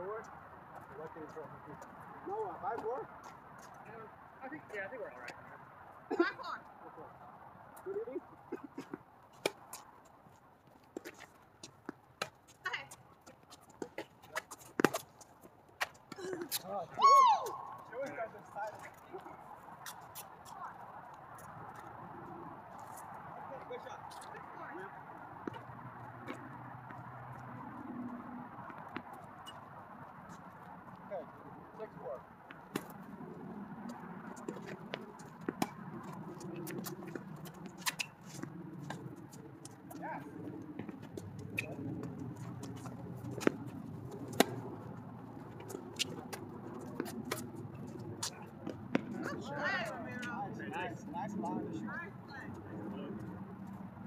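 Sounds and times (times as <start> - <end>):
tennis ball striking rackets: 8.9 - 9.9, 13.7 - 15.2, 32.5 - 33.0, 34.2 - 39.0, 40.7 - 50.4.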